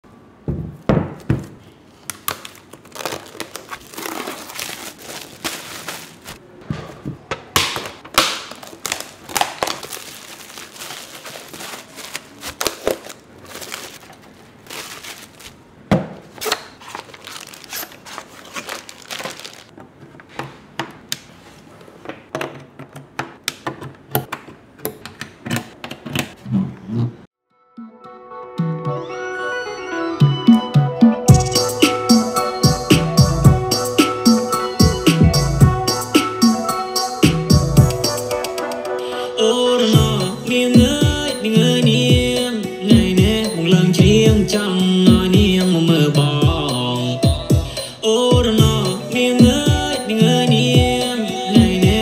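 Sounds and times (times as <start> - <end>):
plastic bags crinkling: 2.0 - 6.4, 7.7 - 19.8
plastic tearing: 2.0 - 6.4, 7.6 - 15.7, 16.3 - 19.8.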